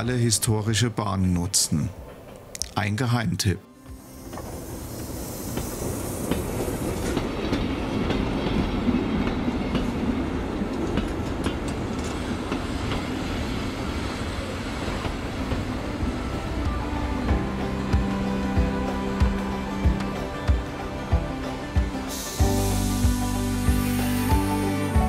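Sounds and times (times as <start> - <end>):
train rumbling along track: 0.0 - 25.0
wheels clicking over rail joints: 5.6 - 13.2.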